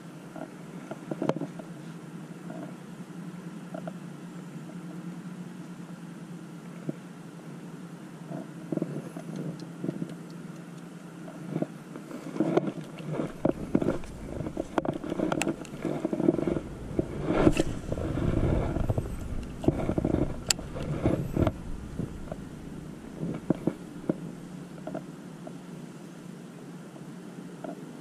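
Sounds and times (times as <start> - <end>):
wind buffeting microphone: 12.6 - 25.0.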